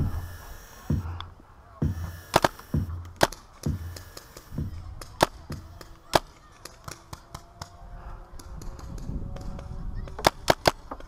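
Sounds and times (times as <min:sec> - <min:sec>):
low thumps: 0:00.0 - 0:05.9
paintball markers popping: 0:02.0 - 0:07.8, 0:08.4 - 0:11.0.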